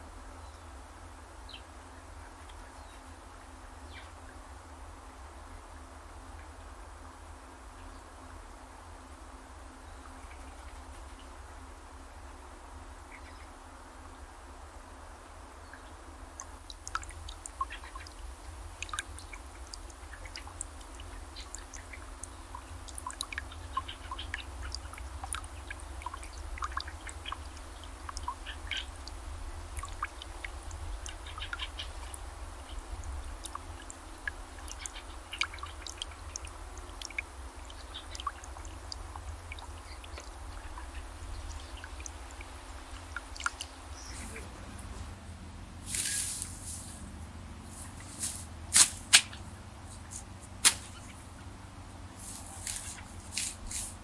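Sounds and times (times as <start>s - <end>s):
steady low rumble: 16.2s - 52.4s
birds cracking seeds: 16.4s - 44.9s, 47.7s - 51.2s.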